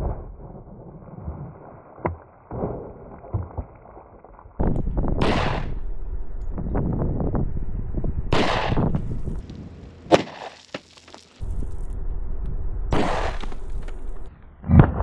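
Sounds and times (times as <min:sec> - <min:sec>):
wind rumble on microphone: 0:04.6 - 0:09.9
pistol shots: 0:05.1 - 0:05.9, 0:08.3 - 0:08.9
sharp gunshot crack: 0:05.1 - 0:05.9, 0:08.3 - 0:09.0, 0:12.9 - 0:13.6.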